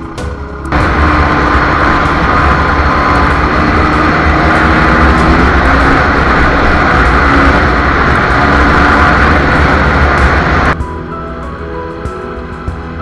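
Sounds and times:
dirt bike engine running: 0.7s - 10.8s
wind noise on microphone: 0.7s - 10.8s.

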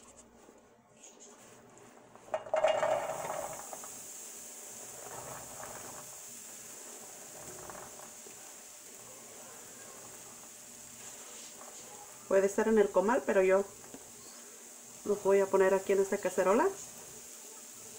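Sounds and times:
corn kernels sizzling in pan: 1.0s - 17.9s
kernels scraped into pan: 2.2s - 8.7s
kernels clattering into pan: 2.3s - 4.0s.

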